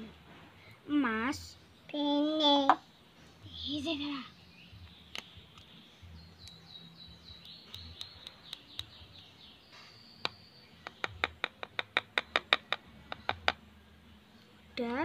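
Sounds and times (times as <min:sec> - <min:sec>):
small bird chirping: 0:02.8 - 0:13.6.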